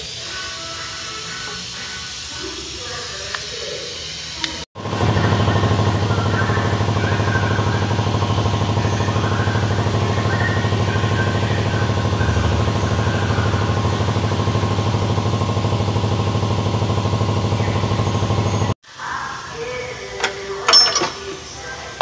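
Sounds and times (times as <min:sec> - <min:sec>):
machine humming with fast pulse: 0:04.1 - 0:18.8.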